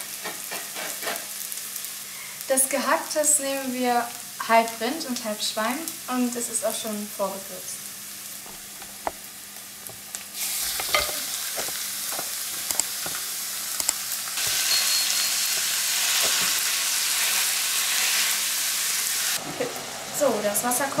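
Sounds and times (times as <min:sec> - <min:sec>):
meat sizzling in a pan: 0:00.0 - 0:21.0
spatula tapping and scraping pan: 0:10.6 - 0:13.2, 0:13.8 - 0:16.6.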